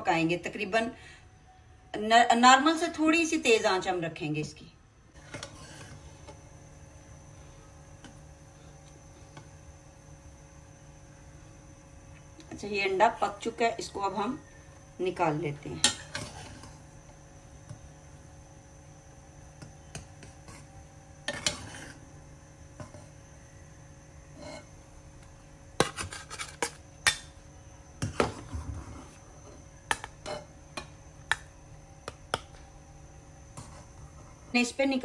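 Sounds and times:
metal spatula scraping a pan: 5.2 - 6.0, 15.8 - 16.8, 20.5 - 22.1, 24.3 - 24.8, 25.8 - 26.8.

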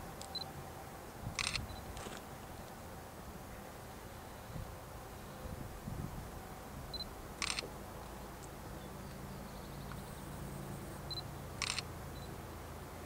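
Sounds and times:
camera beep: 1.4 - 1.9, 7.0 - 7.6, 11.1 - 12.3
camera shutter click: 1.4 - 2.2, 7.4 - 7.6, 11.6 - 11.9.

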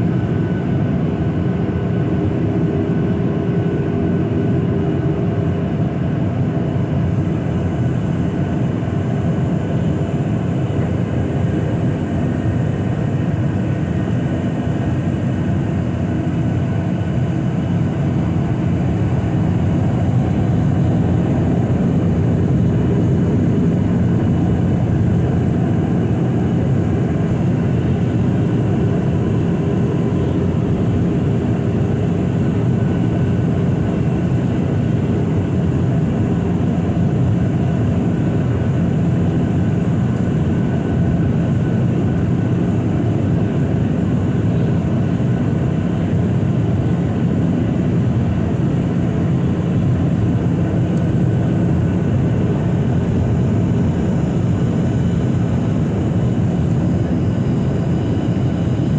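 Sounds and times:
jet engine hum: 0.0 - 58.9.

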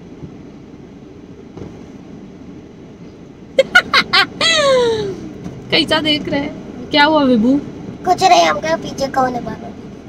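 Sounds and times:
low rumble in car cabin: 0.0 - 10.0
person laughing loudly: 3.6 - 5.2.

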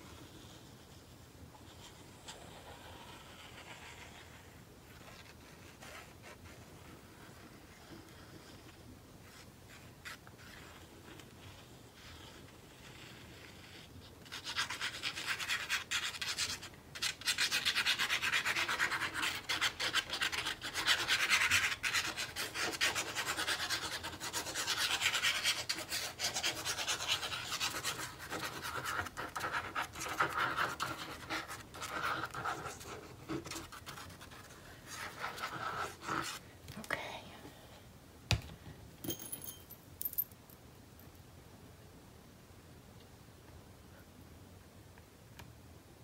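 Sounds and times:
scratchy rubbing on paper: 0.0 - 36.4.

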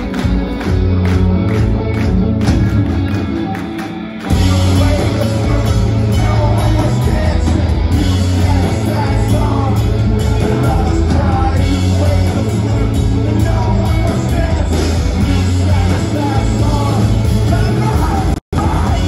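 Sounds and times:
rock band playing live: 0.0 - 19.0.

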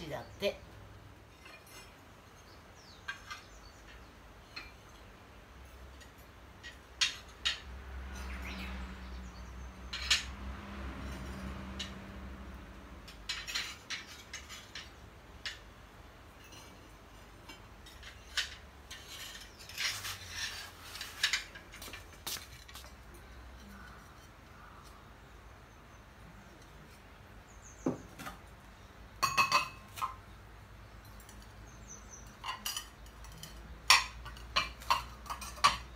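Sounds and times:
ceramic ware clinking: 29.2 - 30.2, 32.4 - 35.9.

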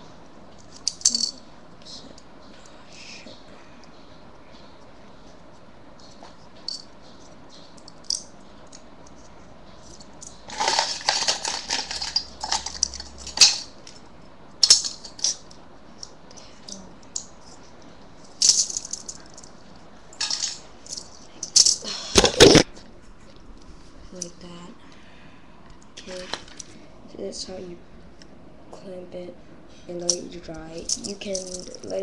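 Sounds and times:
objects rattling in plastic container: 10.5 - 13.7.

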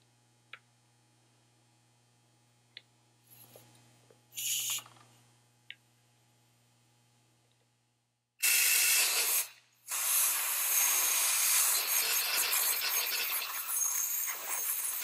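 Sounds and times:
compressed air blow gun hiss: 4.4 - 4.8, 8.4 - 15.0.

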